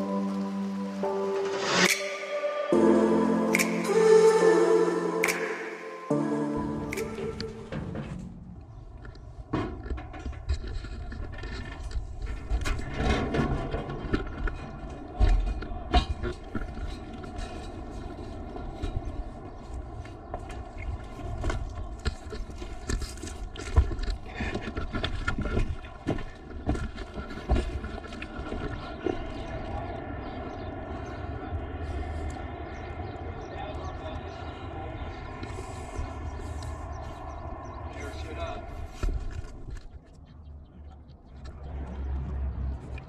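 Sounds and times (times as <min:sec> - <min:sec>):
knocks and crackles: 0:06.9 - 0:30.7.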